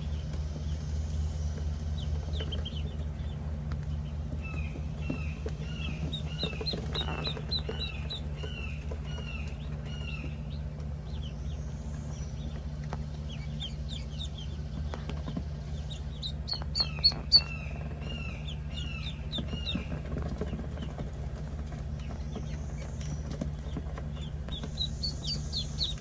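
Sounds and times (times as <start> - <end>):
ducklings peeping: 0.0 - 26.0
lower downward-curving duckling calls: 15.6 - 20.5, 22.3 - 26.0.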